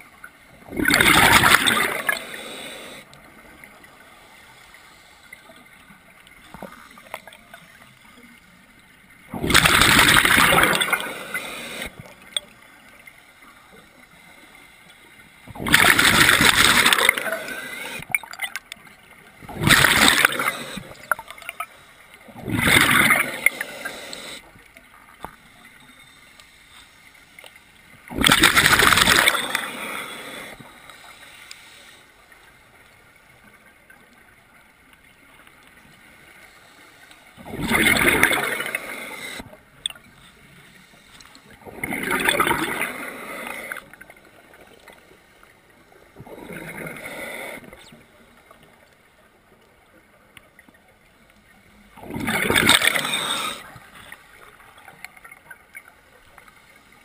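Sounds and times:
gurgling exhaled bubbles underwater: 0:00.6 - 0:02.4, 0:09.3 - 0:12.3, 0:15.4 - 0:18.6, 0:19.4 - 0:21.6, 0:22.2 - 0:24.3, 0:28.1 - 0:30.4, 0:37.4 - 0:39.4, 0:41.6 - 0:45.0, 0:51.9 - 0:56.4.

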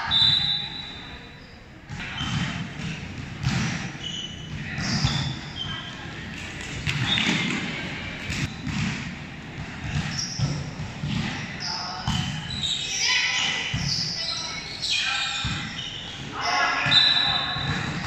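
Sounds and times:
shoes squeaking on court floor: 0:00.2 - 0:08.9, 0:09.8 - 0:10.8, 0:12.0 - 0:18.0
volleyball thuds: 0:06.4 - 0:11.5.

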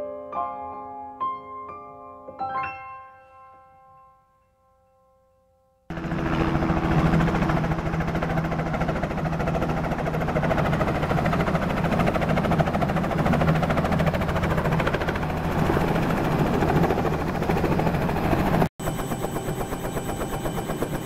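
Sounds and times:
helicopter engine drone: 0:05.9 - 0:21.0
rotor blades beating: 0:05.9 - 0:21.0.

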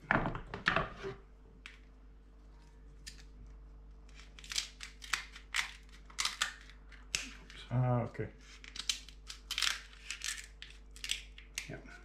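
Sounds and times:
crab shell cracking: 0:03.0 - 0:07.6, 0:08.6 - 0:11.8
scissors snipping crab shells: 0:08.6 - 0:11.8.

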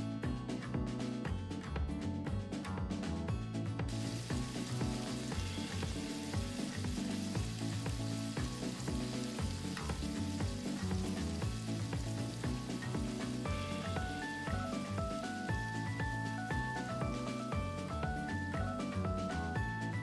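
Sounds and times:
background music with beat: 0:00.0 - 0:20.0
meat sizzling on hot iron plate: 0:03.9 - 0:18.4.

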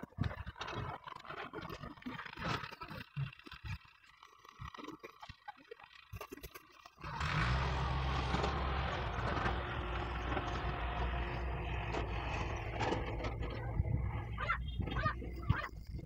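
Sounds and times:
vehicle engine passing by: 0:07.0 - 0:14.6
bird calls: 0:13.4 - 0:15.8.

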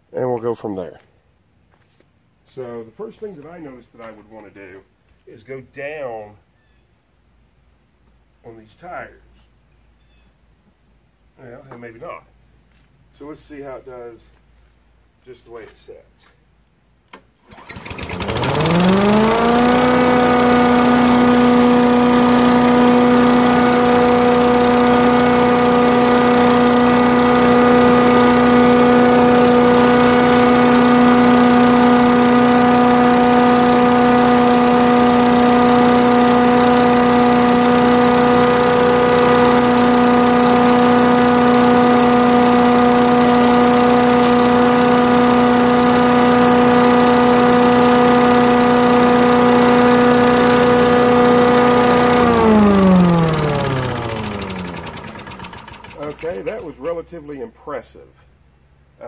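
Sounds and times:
chipper vac engine running: 0:17.5 - 0:57.1.

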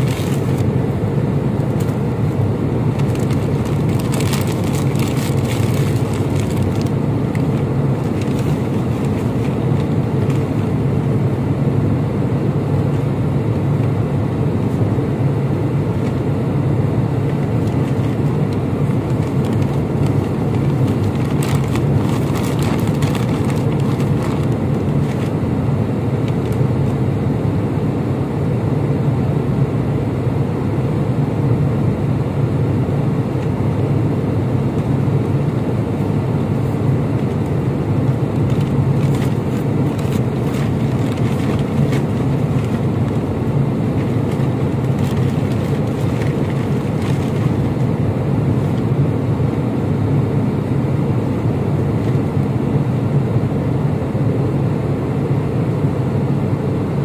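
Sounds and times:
paper bag rustling: 0:00.0 - 0:00.7, 0:02.9 - 0:10.7, 0:17.4 - 0:25.4, 0:38.3 - 0:48.8
airliner cabin drone: 0:00.0 - 0:57.0.

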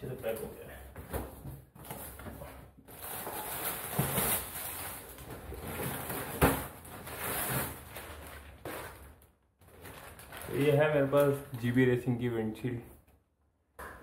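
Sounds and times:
cardboard and plastic tearing: 0:02.9 - 0:11.5.

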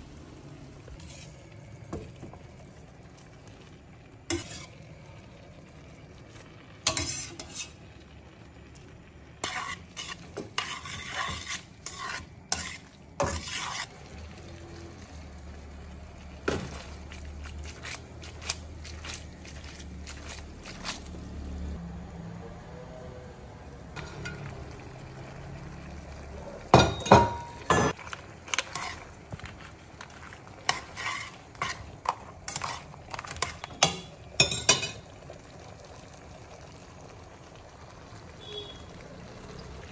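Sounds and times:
sauce sizzling: 0:00.0 - 0:21.8, 0:23.9 - 0:39.9
utensil scraping metal pan: 0:00.9 - 0:01.5, 0:04.3 - 0:04.8, 0:06.8 - 0:07.8, 0:09.4 - 0:13.9, 0:27.0 - 0:29.1, 0:30.0 - 0:35.0.

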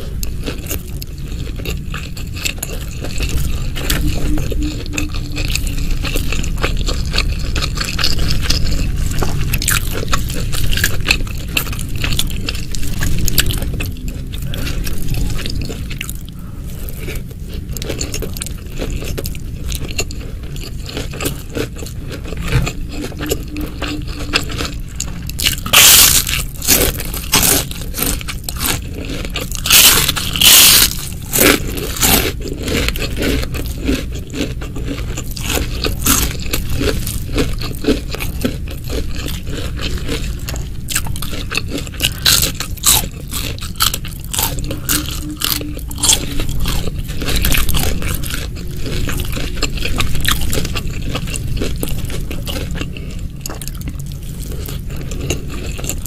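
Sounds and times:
crunchy chewing: 0:00.0 - 0:56.0.

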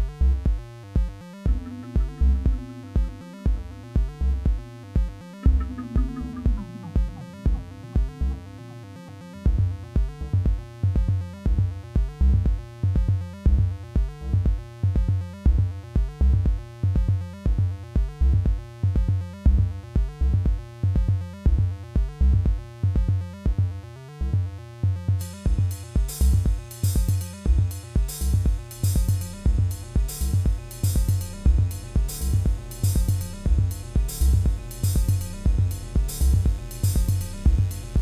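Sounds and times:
hi-hats and cymbals: 0:00.0 - 0:08.3, 0:25.1 - 0:38.0
pulsing synth bass line: 0:00.0 - 0:38.0.

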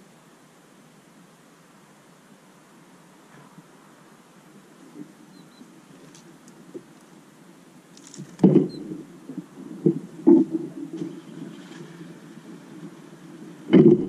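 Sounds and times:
faint high bird chirps: 0:05.3 - 0:05.7, 0:08.6 - 0:09.0
small birds' wings fluttering: 0:07.9 - 0:14.0
loud thumps: 0:08.2 - 0:09.0, 0:13.7 - 0:14.0.

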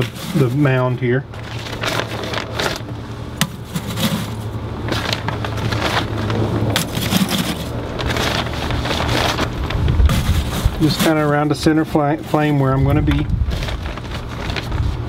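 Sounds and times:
wind on microphone: 0:09.5 - 0:10.9, 0:12.8 - 0:13.9.

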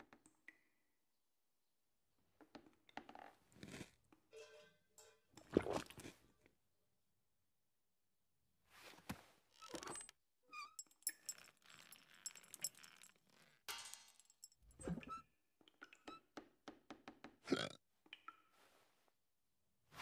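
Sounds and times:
kitchenware clattering: 0:13.7 - 0:14.6.

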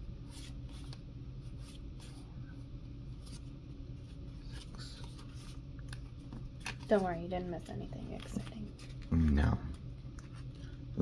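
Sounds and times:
cards sliding against each other: 0:00.2 - 0:02.2, 0:04.4 - 0:07.0.

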